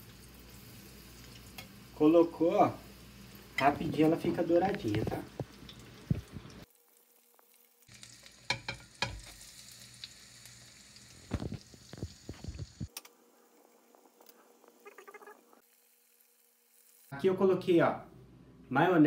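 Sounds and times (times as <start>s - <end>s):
food sizzling in hot oil: 0.0s - 17.1s.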